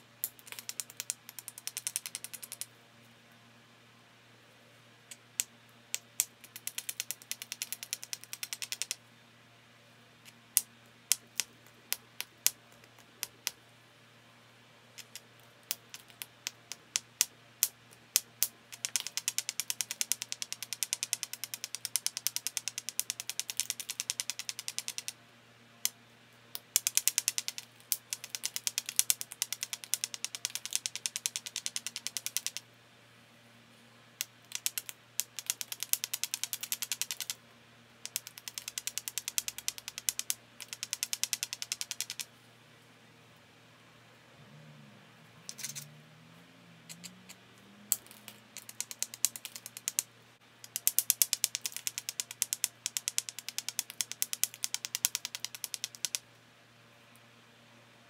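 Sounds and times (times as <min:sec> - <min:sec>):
sharp ticks of stone on flint: 0:00.2 - 0:02.7, 0:05.1 - 0:09.0, 0:15.0 - 0:25.2, 0:25.8 - 0:32.6, 0:34.2 - 0:37.4, 0:38.0 - 0:42.3, 0:47.9 - 0:56.2.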